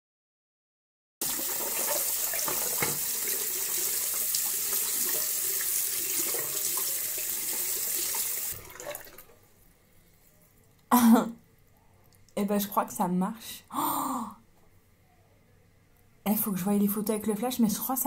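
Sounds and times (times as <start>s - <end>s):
tap running into sink: 1.3s - 5.4s.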